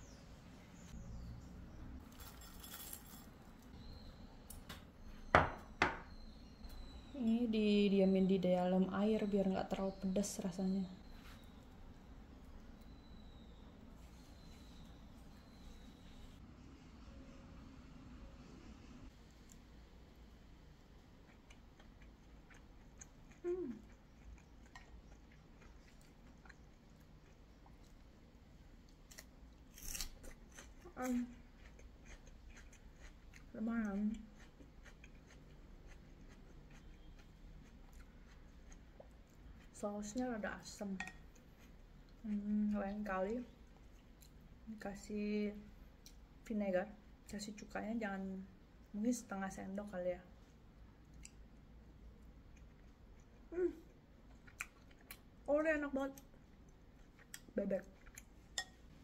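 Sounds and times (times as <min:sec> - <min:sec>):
chewing crunchy salad: 0:02.0 - 0:03.7, 0:21.1 - 0:28.1, 0:28.9 - 0:44.6, 0:50.4 - 0:55.5, 0:56.1 - 0:59.0
metal tongs clinking on ceramic bowl: 0:58.6 - 0:58.8.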